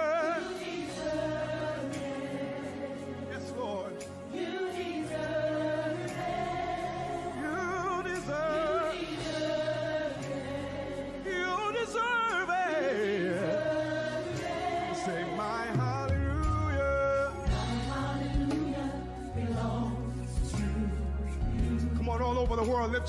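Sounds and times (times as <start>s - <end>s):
backing vocal harmonies: 0.0s - 23.0s
lead singer with vibrato: 7.0s - 23.0s
bass: 13.6s - 23.0s.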